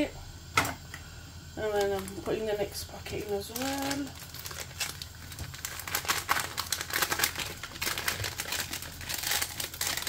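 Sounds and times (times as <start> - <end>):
packet crinkling: 1.6 - 2.3, 3.1 - 10.0.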